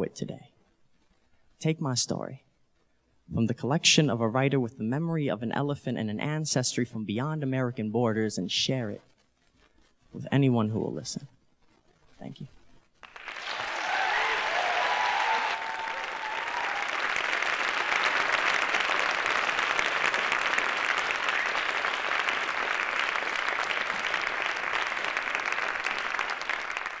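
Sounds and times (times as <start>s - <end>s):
audience applauding: 13.0s - 27.0s.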